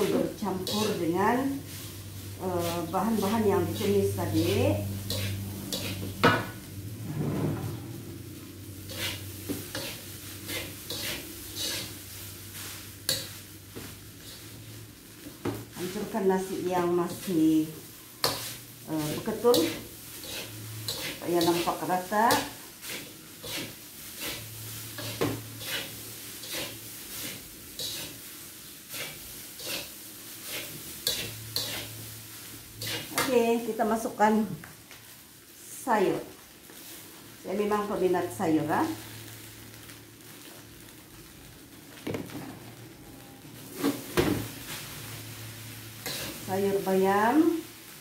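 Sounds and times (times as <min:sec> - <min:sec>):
metal spatula scraping a wok: 0:00.0 - 0:13.5, 0:14.2 - 0:14.6, 0:16.8 - 0:33.8, 0:43.6 - 0:47.4
rice sizzling: 0:00.0 - 0:48.0
spatula clanking on wok: 0:05.0 - 0:06.6, 0:30.5 - 0:31.9.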